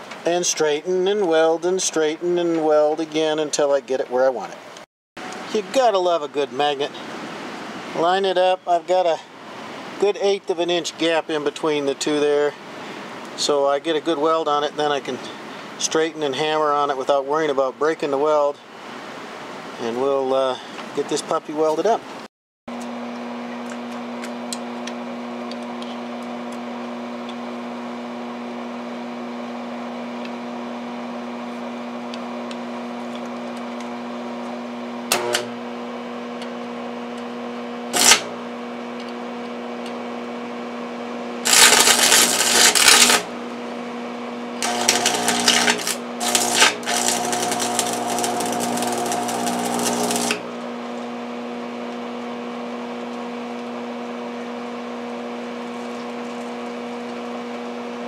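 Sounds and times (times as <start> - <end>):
steady electrical hum: 22.8 - 58.0
arc welding crackling: 37.9 - 38.4, 41.4 - 43.4, 44.6 - 50.5.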